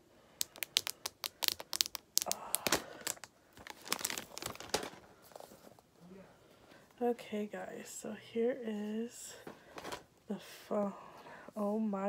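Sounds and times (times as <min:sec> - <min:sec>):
plastic wrap crinkling: 0:00.4 - 0:05.5.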